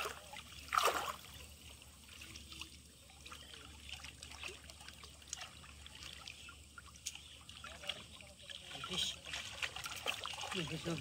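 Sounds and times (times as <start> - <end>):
loud splash: 0.0 - 1.3
small splashes and drips: 0.0 - 11.0
water sloshing and trickling: 0.0 - 11.0.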